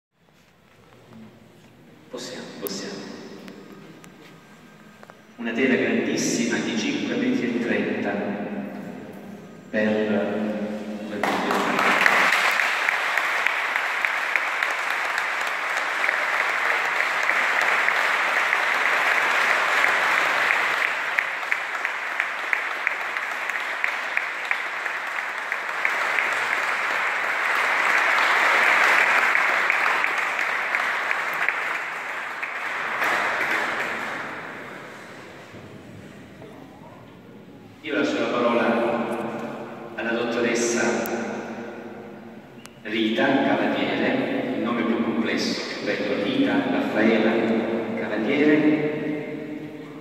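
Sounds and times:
large audience applauding: 11.1 - 35.5.

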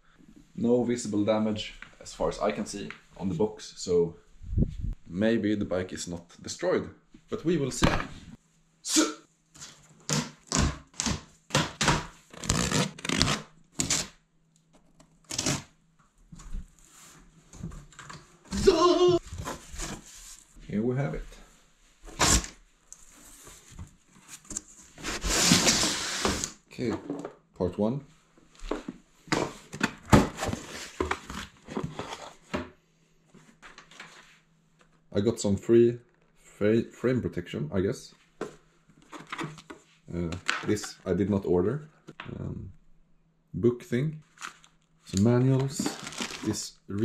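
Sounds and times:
cardboard and paper rustling: 17.6 - 20.5, 28.7 - 32.5, 45.2 - 46.6.

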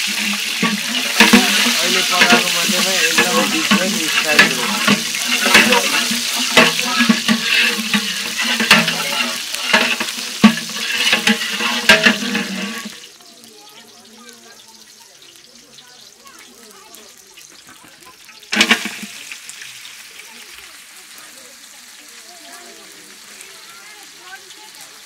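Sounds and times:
ladle knocking against pot: 0.0 - 13.0
oil sizzling: 0.0 - 25.0.

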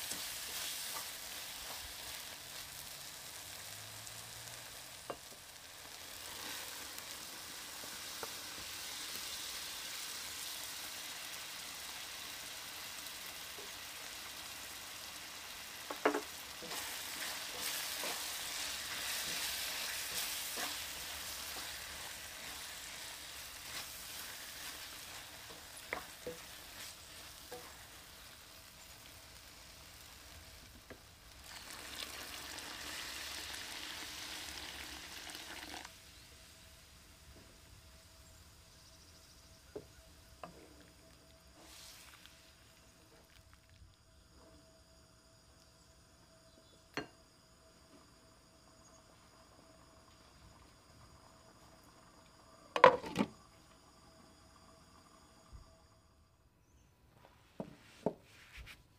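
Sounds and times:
sauce sizzling in a wok: 0.0 - 56.3
wooden spatula stirring: 16.0 - 27.8
water pouring into pan: 31.4 - 35.9.

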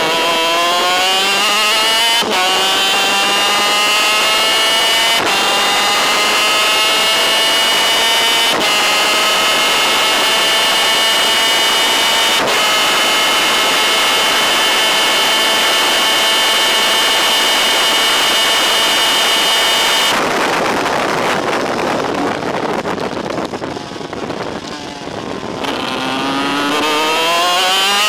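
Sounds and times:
wind noise: 0.0 - 28.0.

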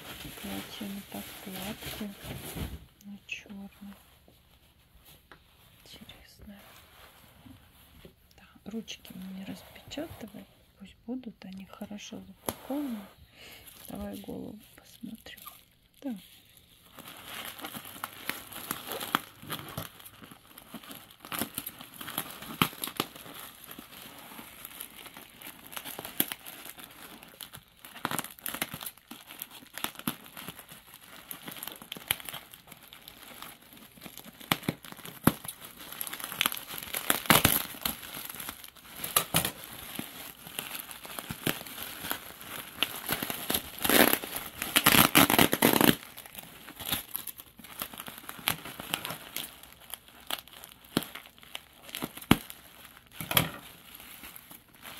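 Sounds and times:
bubble wrap crinkling: 0.0 - 54.9
scissors cutting plastic: 42.8 - 46.1.

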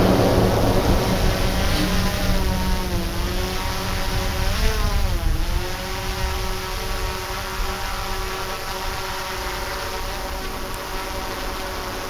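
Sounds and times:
low rumble: 0.0 - 5.6
engine running: 0.0 - 12.0.

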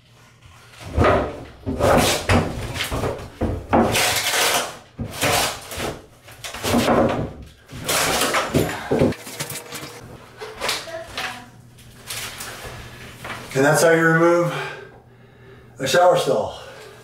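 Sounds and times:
shower pan scraping and knocking: 8.5 - 10.0.

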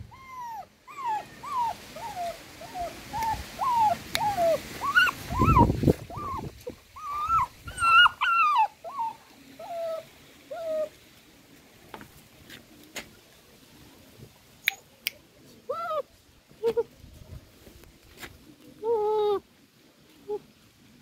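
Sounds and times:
puppy whimpering: 0.0 - 10.9, 15.7 - 16.9, 18.8 - 19.4.

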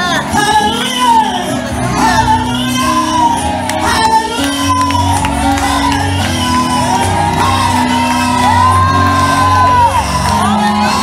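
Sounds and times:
woman singing gospel song: 0.0 - 6.7.

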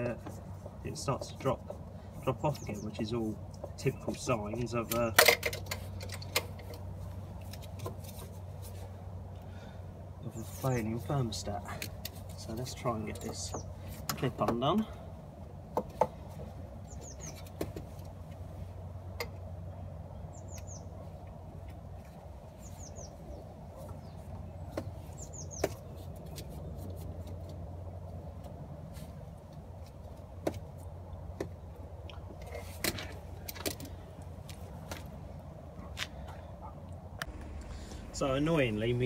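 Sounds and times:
small bird chirping: 20.2 - 21.0, 22.6 - 26.4
steady low hum: 33.1 - 39.0.

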